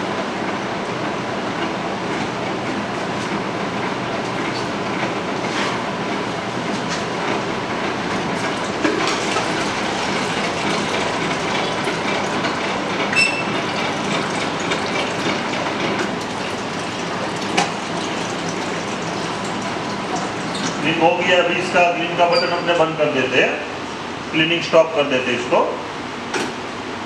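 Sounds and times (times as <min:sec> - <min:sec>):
ice cream machine running: 0:00.0 - 0:27.0
water pouring into a jug: 0:13.5 - 0:20.8.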